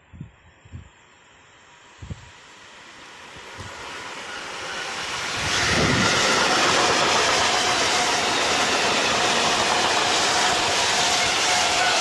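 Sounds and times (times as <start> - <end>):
freight train passing at speed: 0.8 - 12.0.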